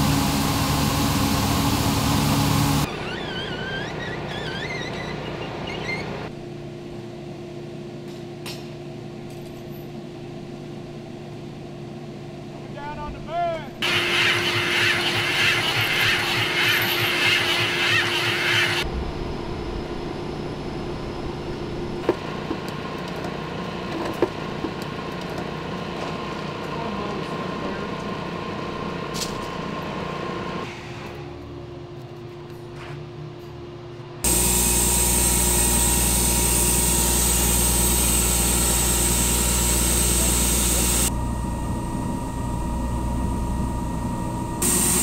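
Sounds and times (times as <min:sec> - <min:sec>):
loud engine drone: 0:00.0 - 0:02.9, 0:13.8 - 0:25.0, 0:34.2 - 0:45.0
machinery engines running: 0:00.0 - 0:03.6, 0:12.5 - 0:32.7, 0:33.4 - 0:45.0.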